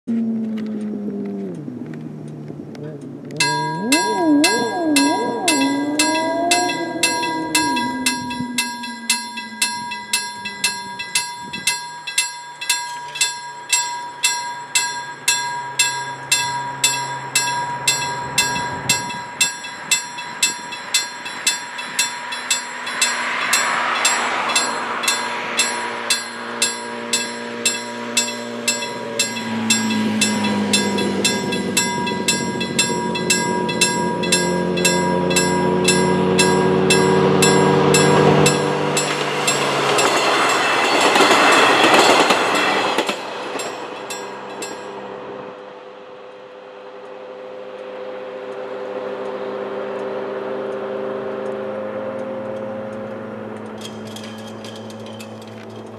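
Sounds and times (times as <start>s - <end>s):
rail vehicle engine: 0.1s - 55.9s
level crossing bell dinging: 3.4s - 45.0s.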